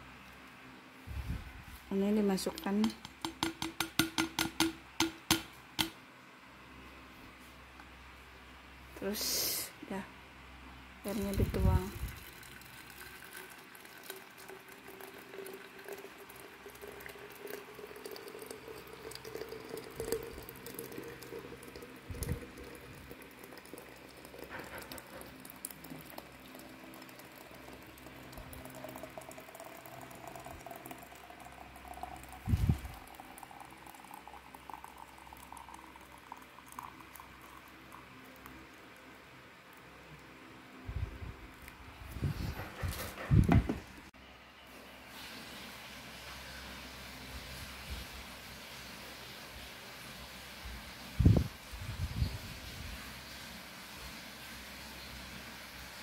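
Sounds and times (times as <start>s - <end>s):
water pouring into glass jug: 11.0s - 39.8s.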